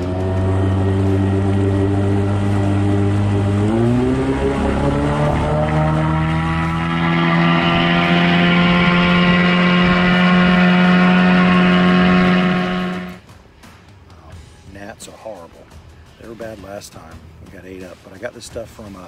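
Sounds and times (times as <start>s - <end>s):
outboard motor running: 0.0s - 13.2s.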